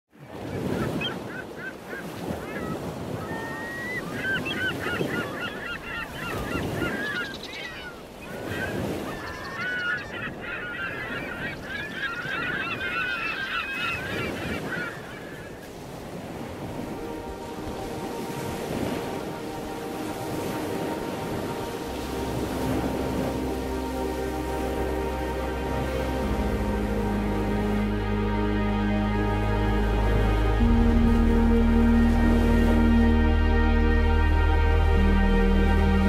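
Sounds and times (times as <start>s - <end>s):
flock of birds calling: 0.3s - 15.8s.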